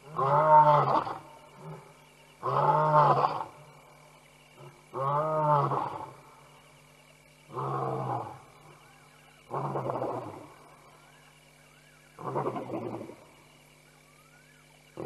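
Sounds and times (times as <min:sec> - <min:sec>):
lion roaring: 0:00.0 - 0:03.6, 0:07.5 - 0:08.5, 0:09.5 - 0:10.5.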